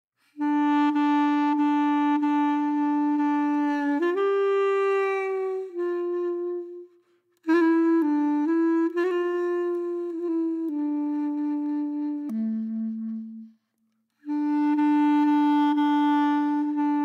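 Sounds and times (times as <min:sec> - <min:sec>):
solo wind instrument melody: 0:00.2 - 0:17.0.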